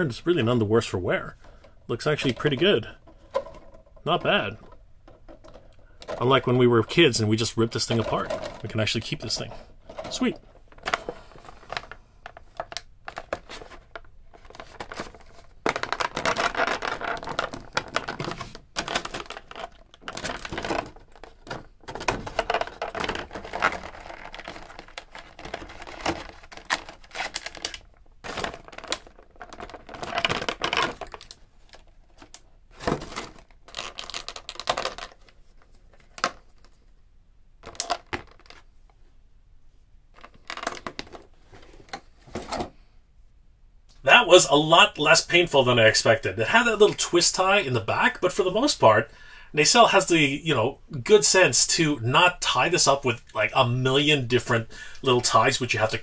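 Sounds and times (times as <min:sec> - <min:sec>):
plastic tray crinkling: 0:00.3 - 0:36.9, 0:37.6 - 0:38.7, 0:40.1 - 0:42.7.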